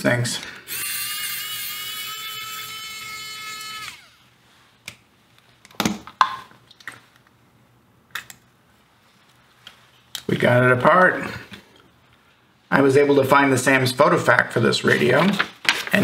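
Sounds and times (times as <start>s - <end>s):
electric screwdriver whining: 0.7s - 4.2s.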